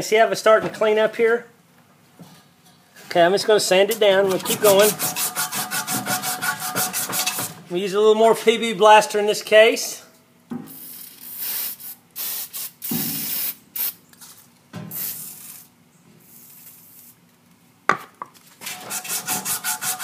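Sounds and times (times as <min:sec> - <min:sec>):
sandpaper rubbing on metal shaft: 0:04.3 - 0:07.5, 0:18.7 - 0:20.0
aerosol spray hisses: 0:10.8 - 0:14.0, 0:14.9 - 0:15.6.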